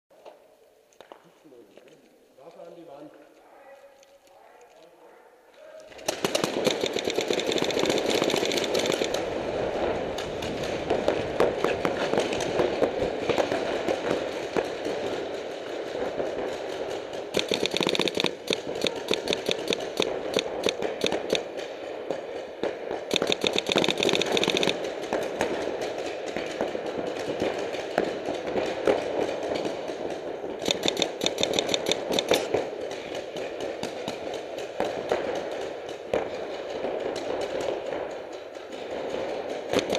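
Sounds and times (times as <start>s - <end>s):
paintball markers firing: 5.9s - 39.9s.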